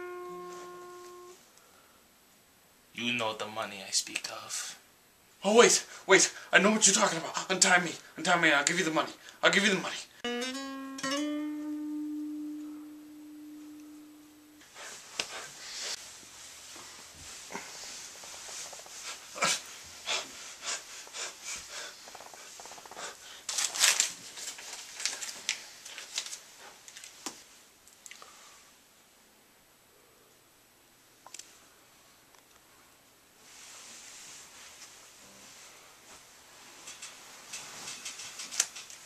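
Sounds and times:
acoustic guitar note: 0:00.0 - 0:01.4, 0:10.2 - 0:14.7
person panting heavily: 0:14.7 - 0:16.0, 0:19.0 - 0:23.5.

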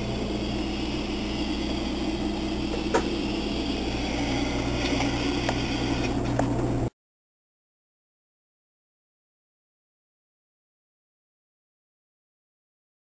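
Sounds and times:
low hum: 0:00.0 - 0:06.9.

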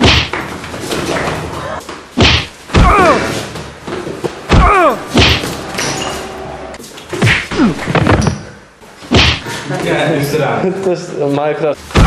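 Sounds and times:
bodies thumping in scuffle: 0:07.1 - 0:08.4.

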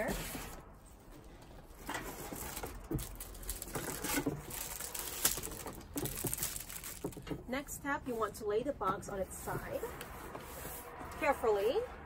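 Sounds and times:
cardboard packaging rustling: 0:00.0 - 0:07.4.

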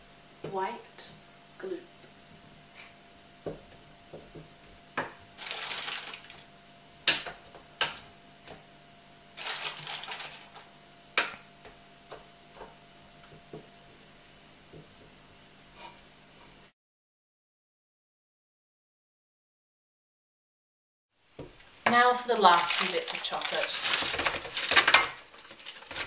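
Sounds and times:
chocolate rattling in bowl: 0:05.4 - 0:06.4, 0:09.4 - 0:10.6, 0:22.3 - 0:26.0.

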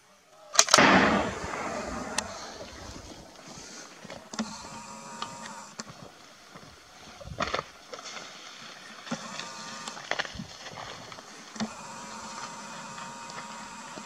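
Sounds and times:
gunshots: 0:00.6 - 0:04.2.

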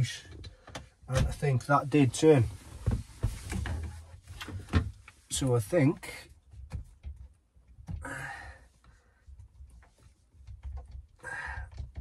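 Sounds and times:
long breaths out: 0:08.0 - 0:09.2.

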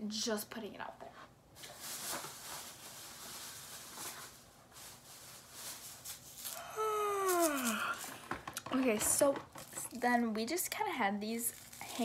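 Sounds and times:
rummaging through packages: 0:01.6 - 0:10.2.

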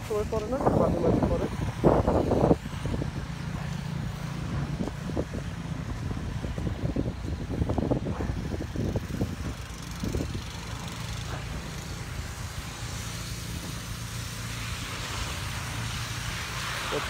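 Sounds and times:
minivan driving by on wet street: 0:08.8 - 0:17.0.

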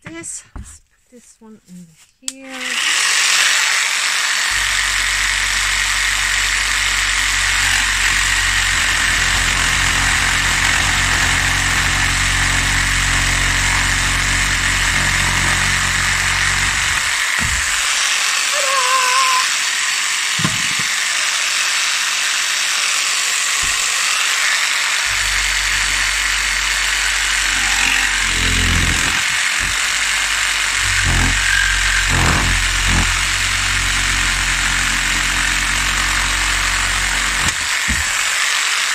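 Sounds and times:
jigsaw cutting wood: 0:02.5 - 0:38.9
knocks: 0:16.4 - 0:17.9, 0:20.4 - 0:20.9, 0:37.4 - 0:38.2.

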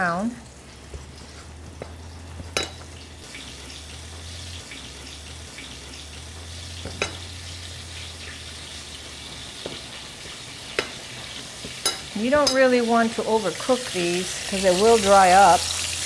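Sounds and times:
meat sizzling in fat: 0:00.0 - 0:16.0
metal spoon clinking ceramic bowl: 0:02.6 - 0:02.8, 0:06.9 - 0:07.2, 0:11.8 - 0:12.6.

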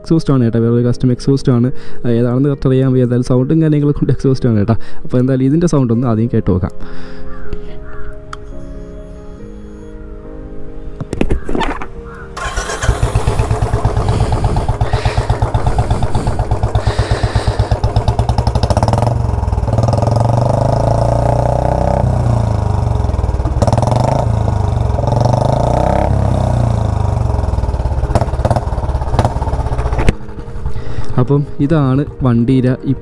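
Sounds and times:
motorcycle engine idling and revving: 0:12.4 - 0:32.1.

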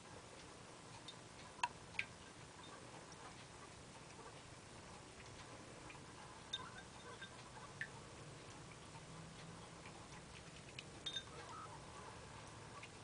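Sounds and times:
kibble clinking in ceramic bowl: 0:11.1 - 0:11.4.

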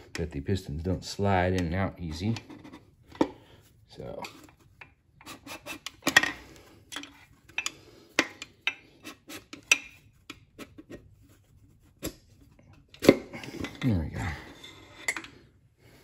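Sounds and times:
light metallic clinks and scrapes: 0:12.7 - 0:15.5.

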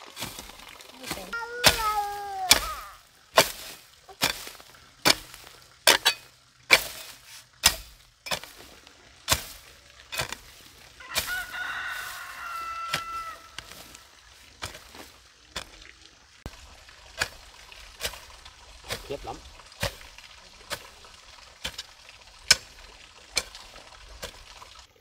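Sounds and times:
rooster crowing: 0:11.0 - 0:13.9.

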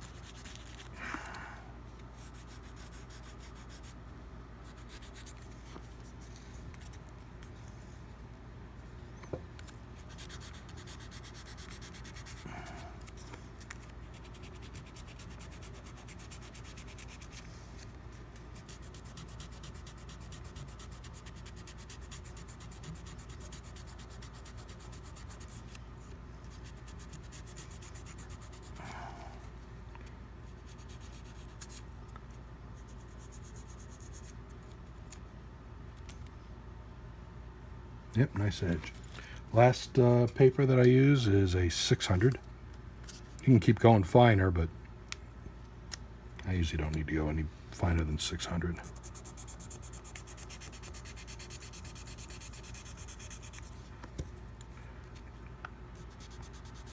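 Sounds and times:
sandpaper rubbing on rubber: 0:00.0 - 0:00.9, 0:02.2 - 0:04.0, 0:04.6 - 0:05.4, 0:10.0 - 0:12.8, 0:14.1 - 0:17.5, 0:18.6 - 0:25.8, 0:26.5 - 0:28.9, 0:30.6 - 0:31.8, 0:48.8 - 0:53.8, 0:56.0 - 0:56.9.

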